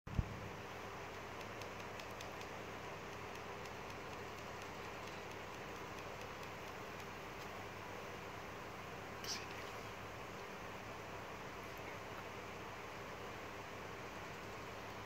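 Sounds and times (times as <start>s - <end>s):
low hum and hiss: 0.1s - 15.0s.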